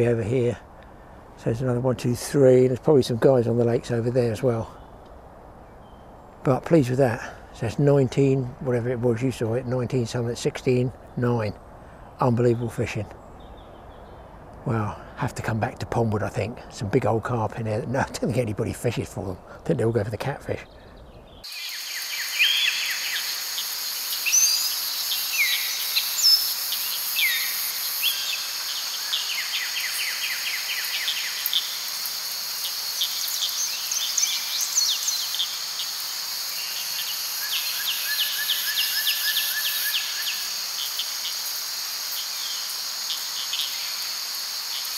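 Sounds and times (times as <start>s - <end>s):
insects trilling: 21.4s - 44.9s.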